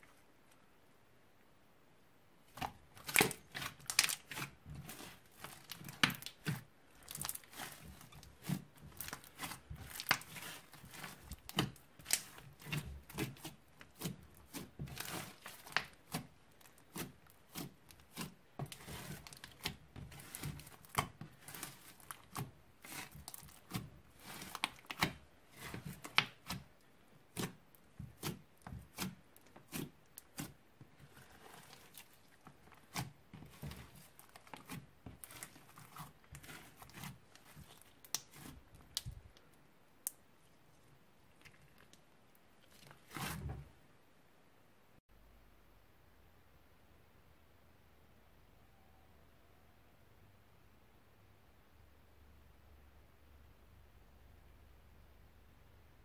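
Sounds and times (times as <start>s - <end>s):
hands squishing slime: 2.5s - 43.5s.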